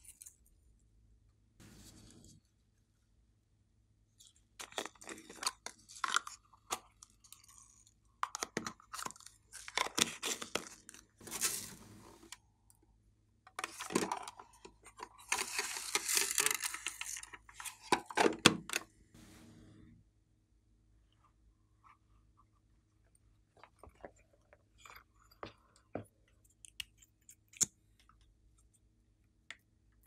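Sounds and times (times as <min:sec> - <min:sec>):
plastic crinkling and scraping: 0:08.3 - 0:12.4, 0:13.6 - 0:18.4
rustling: 0:11.2 - 0:12.4.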